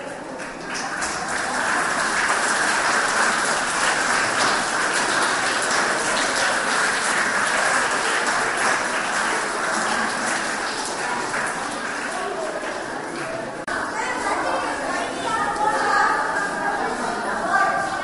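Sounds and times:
children applauding: 0:00.3 - 0:13.7.

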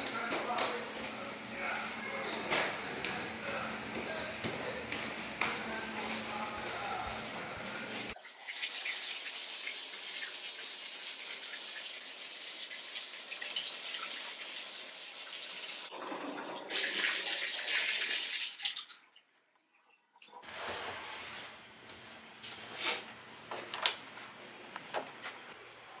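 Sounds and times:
water running from bathtub faucet: 0:08.1 - 0:20.5.

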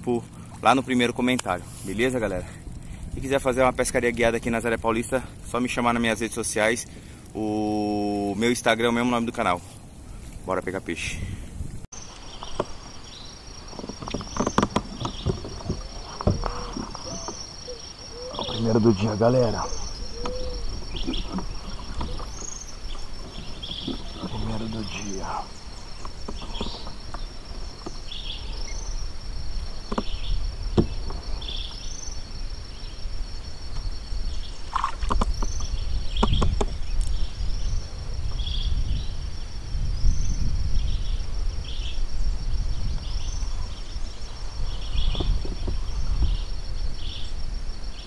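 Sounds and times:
high insect drone: 0:00.0 - 0:11.1, 0:12.0 - 0:48.0
wind rumbling on microphone: 0:00.0 - 0:48.0
sharp clicks and knocks: 0:13.7 - 0:17.4, 0:35.0 - 0:37.1.

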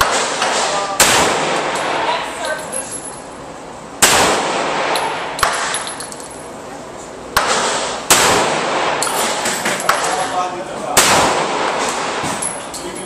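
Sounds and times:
pistol shots echoing indoors: 0:00.0 - 0:02.1, 0:04.0 - 0:05.9, 0:07.4 - 0:10.1, 0:11.0 - 0:12.4.

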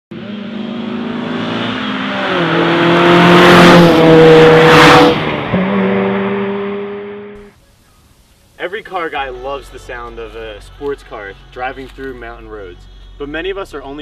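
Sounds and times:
car driving past at speed: 0:00.1 - 0:07.4.

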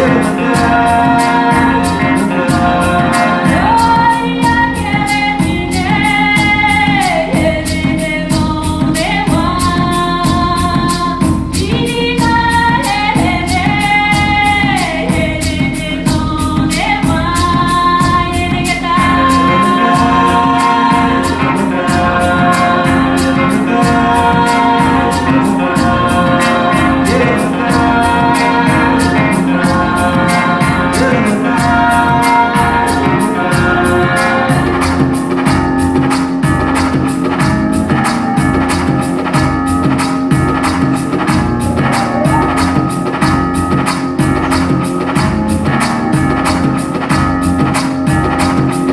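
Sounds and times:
singing voice over loudspeakers: 0:18.7 - 0:34.7, 0:42.0 - 0:42.6.

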